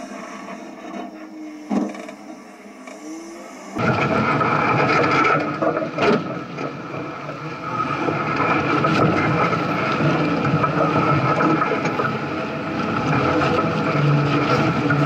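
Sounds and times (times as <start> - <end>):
off-road vehicle engine running: 0.0 - 15.0
tires crackling over rocks: 3.8 - 15.0.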